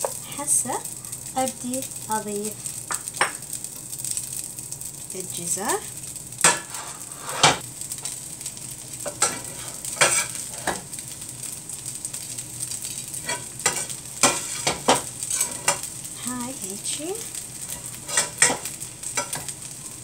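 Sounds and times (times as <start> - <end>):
hot pan sizzling: 0.0 - 20.0
metal spoon scraping frying pan: 6.4 - 7.6, 9.0 - 10.8, 13.2 - 15.9, 17.6 - 19.5.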